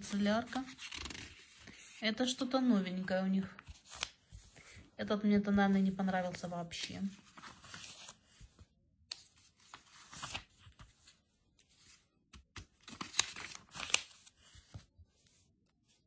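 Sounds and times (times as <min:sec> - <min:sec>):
paper pages being turned: 0:00.0 - 0:04.9, 0:05.8 - 0:16.0.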